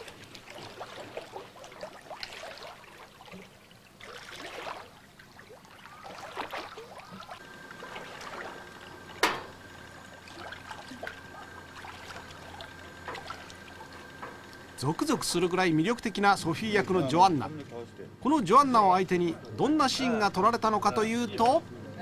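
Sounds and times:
pool water splashing: 0.0s - 21.7s.

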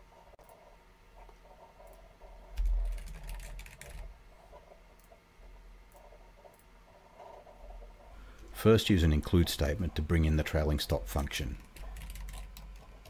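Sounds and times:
typing on a keyboard: 2.6s - 4.1s, 11.6s - 13.0s.

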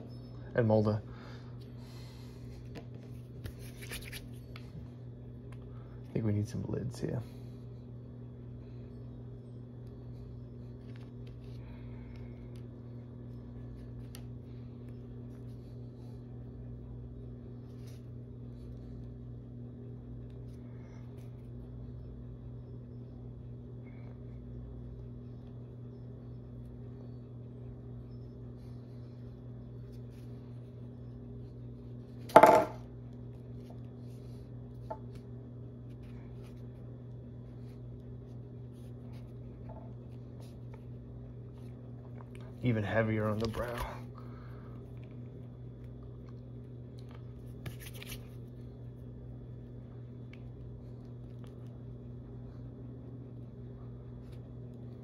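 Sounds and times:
low steady hum: 0.0s - 55.0s
tool clattering on table: 32.3s - 32.8s.

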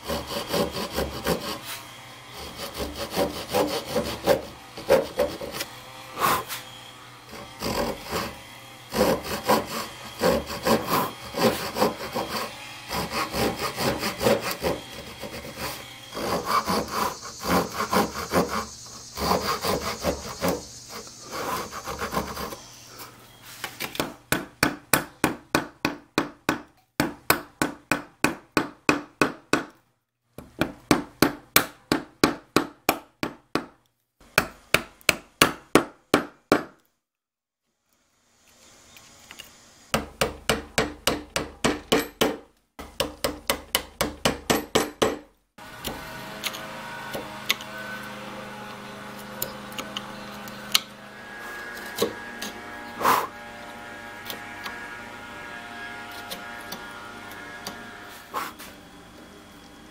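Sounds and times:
hand saw cutting wood: 0.0s - 25.3s, 39.9s - 58.8s
hammer striking chisel: 23.9s - 29.8s, 34.4s - 36.9s, 39.9s - 47.7s, 49.2s - 50.9s, 51.9s - 52.6s.

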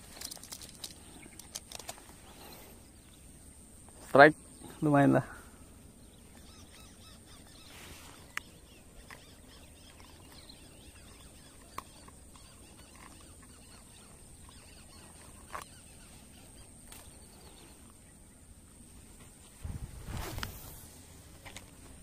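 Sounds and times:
sharp clicks: 0.0s - 2.0s
faint bird chirps: 0.1s - 19.8s.

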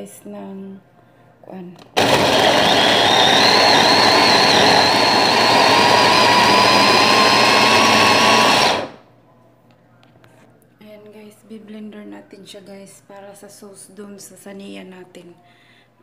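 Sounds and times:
electric food chopper motor whine: 2.0s - 9.0s.

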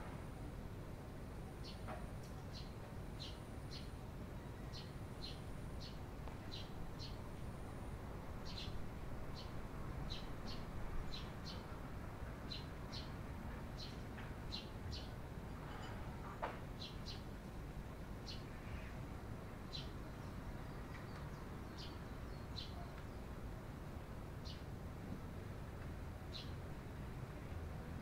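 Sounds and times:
sparrows chirping: 1.5s - 11.7s, 12.5s - 16.0s, 16.8s - 17.4s, 18.2s - 23.5s, 24.4s - 24.7s, 26.3s - 26.6s.

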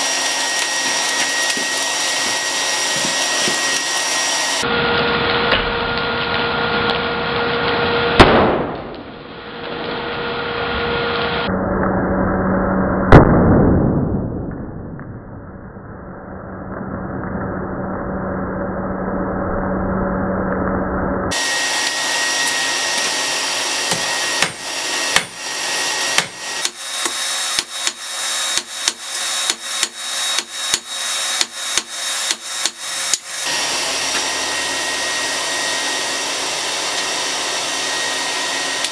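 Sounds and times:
hammer striking hot metal on anvil: 23.8s - 25.4s, 26.1s - 33.5s.

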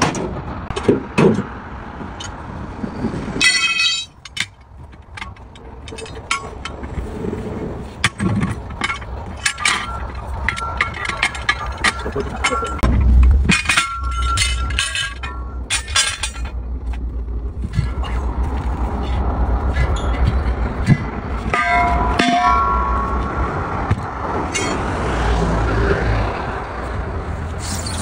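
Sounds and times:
highway traffic rumble: 0.0s - 28.0s
tyre bar clinking on wheel rim: 3.4s - 7.0s, 8.0s - 17.0s, 17.6s - 24.8s
brief squeal: 27.6s - 28.0s.

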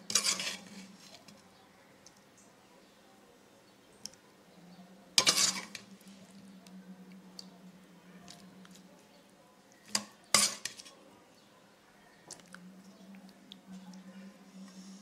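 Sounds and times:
spoon clinking and scraping bowls: 0.0s - 1.3s, 5.2s - 5.9s, 9.9s - 11.0s
faint low hum: 0.0s - 15.0s.

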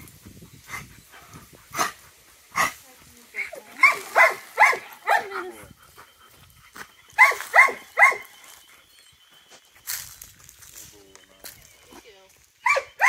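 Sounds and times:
dog barking: 3.8s - 5.5s, 7.2s - 8.3s, 12.6s - 13.0s.

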